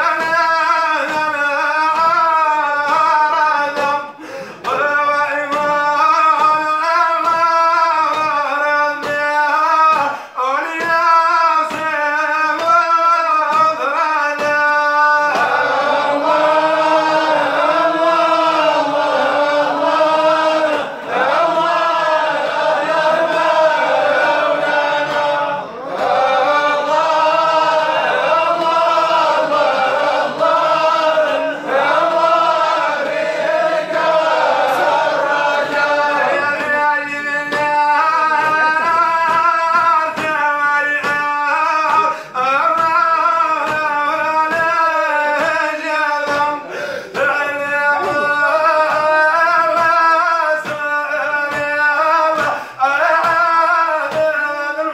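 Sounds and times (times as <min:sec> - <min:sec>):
man chanting devotional song: 0:00.0 - 0:54.9.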